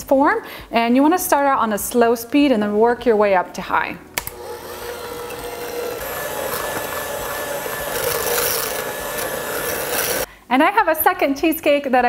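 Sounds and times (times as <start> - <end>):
electric hand mixer whirring: 4.2 - 10.3.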